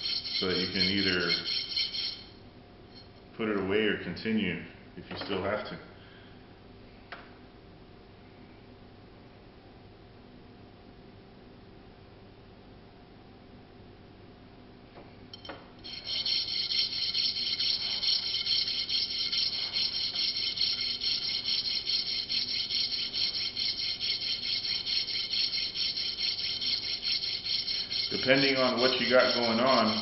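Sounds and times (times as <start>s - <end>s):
metal washer rasping on file: 0.0s - 2.3s, 15.8s - 30.0s.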